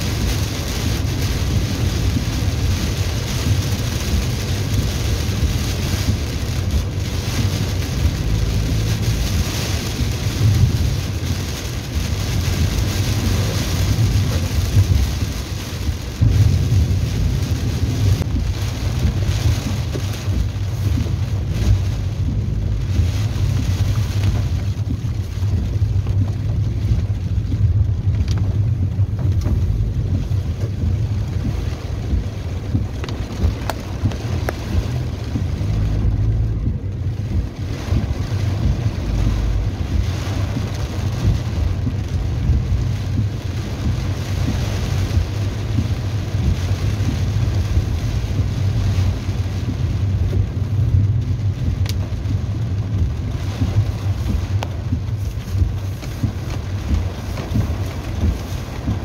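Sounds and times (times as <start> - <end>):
car tyres rumbling on wet road: 0.0 - 59.0
rain hissing on car body: 0.0 - 59.0.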